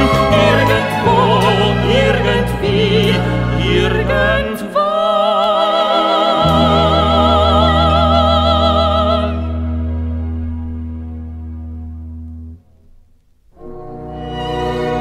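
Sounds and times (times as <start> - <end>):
person singing with vibrato: 0.0 - 9.9
orchestral chord: 6.4 - 12.6
deep bass note: 6.5 - 12.8.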